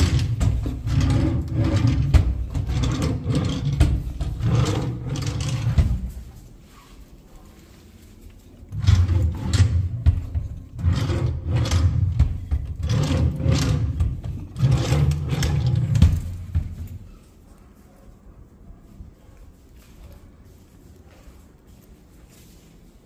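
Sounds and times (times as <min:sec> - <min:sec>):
wooden drawers sliding open and shut: 0:00.0 - 0:06.2, 0:08.7 - 0:17.0.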